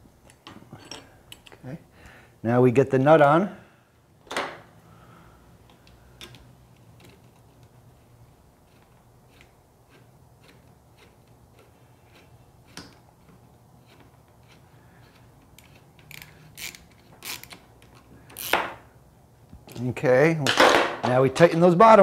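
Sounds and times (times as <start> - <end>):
socket ratchet clicking: 13.9 - 18.8.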